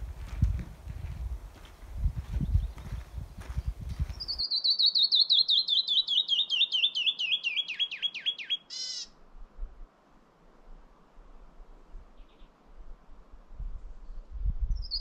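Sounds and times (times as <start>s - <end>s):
footsteps on a trail: 0.0s - 4.5s
bird singing falling whistled notes: 4.2s - 8.6s, 14.8s - 15.0s.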